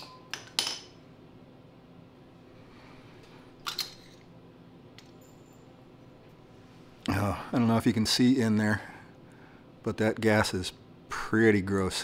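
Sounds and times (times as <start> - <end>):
small metal clinks: 5.0 - 5.7.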